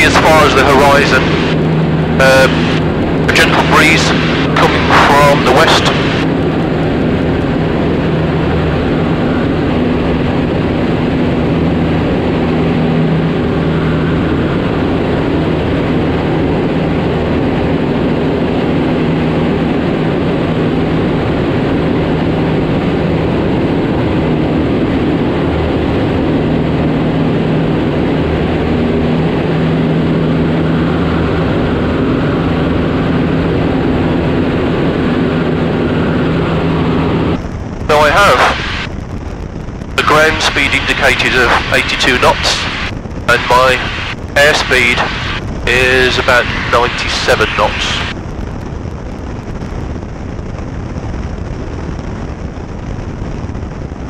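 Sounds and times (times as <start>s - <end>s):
light aircraft engine droning: 0.0s - 54.0s.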